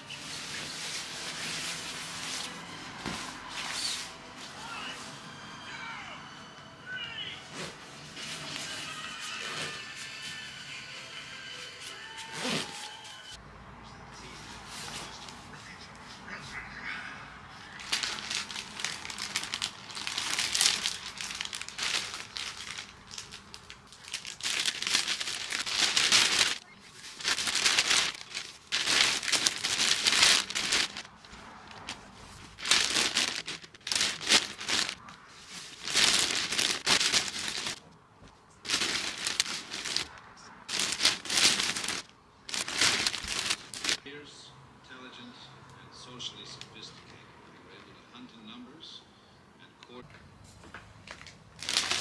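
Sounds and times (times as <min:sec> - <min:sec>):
plastic bag crinkling: 0:17.7 - 0:37.8, 0:38.6 - 0:44.0, 0:51.0 - 0:52.0.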